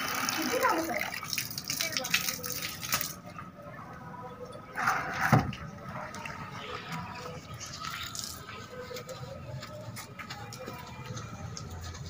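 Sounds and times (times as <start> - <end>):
hose water splashing: 0.0 - 3.2, 6.1 - 8.8.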